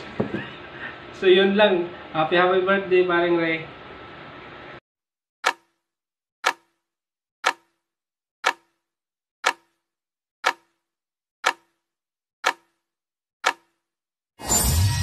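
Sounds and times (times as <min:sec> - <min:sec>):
clock-like countdown ticks: 0:05.4 - 0:05.8, 0:06.4 - 0:06.8, 0:07.4 - 0:07.8, 0:08.4 - 0:13.9.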